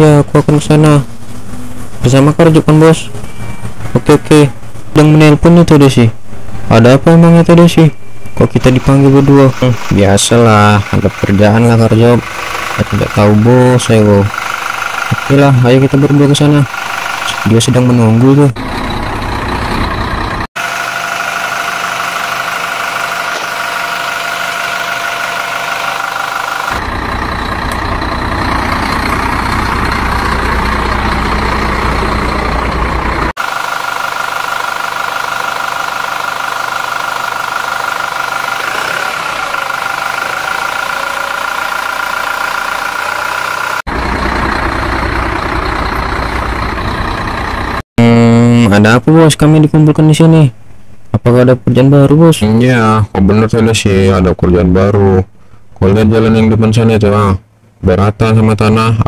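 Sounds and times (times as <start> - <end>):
electric motor and gear whine: 18.6 - 47.8.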